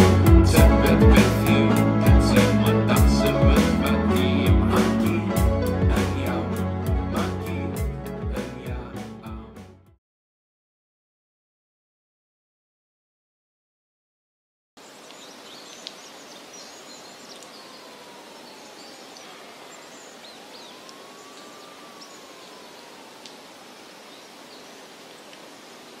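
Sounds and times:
bird chirps: 0:14.8 - 0:22.9
steady hiss: 0:14.8 - 0:26.0.

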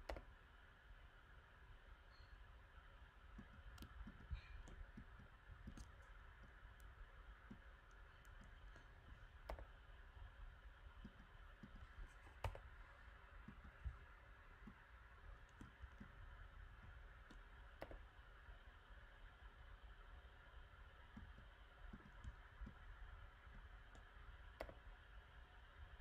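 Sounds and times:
mouse and keyboard clicks: 0:00.0 - 0:00.3, 0:03.4 - 0:06.9, 0:07.5 - 0:09.8, 0:11.0 - 0:14.0, 0:15.4 - 0:16.2, 0:17.2 - 0:18.1, 0:23.9 - 0:24.8
low steady hiss: 0:00.0 - 0:26.0.

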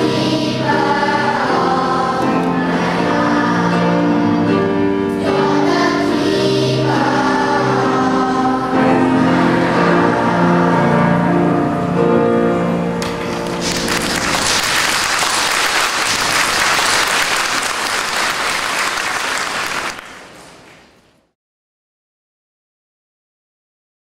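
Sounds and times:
children's choir singing: 0:00.0 - 0:20.9
audience applauding: 0:13.0 - 0:21.1.

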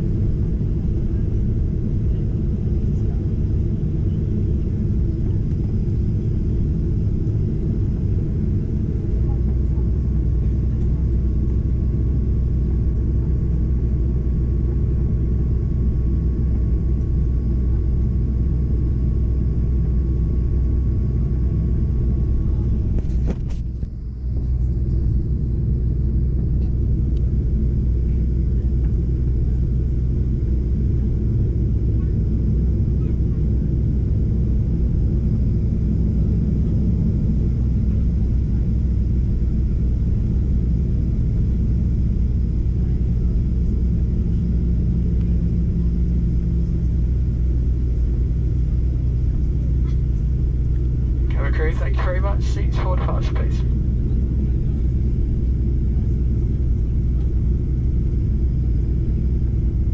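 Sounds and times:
aircraft cabin engine rumble: 0:00.0 - 0:59.9.

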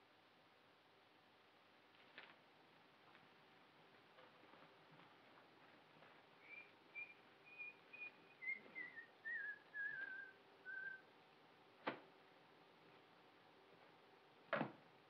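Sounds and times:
man whistling a tune: 0:06.4 - 0:11.0.

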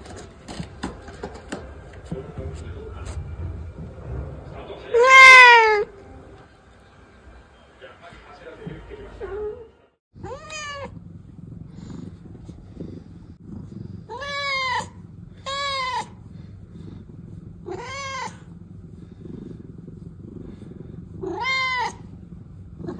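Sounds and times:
cat purring: 0:00.0 - 0:22.9
cat meowing: 0:04.9 - 0:05.9, 0:10.2 - 0:11.0, 0:14.1 - 0:16.2, 0:17.6 - 0:18.5, 0:21.2 - 0:22.1.

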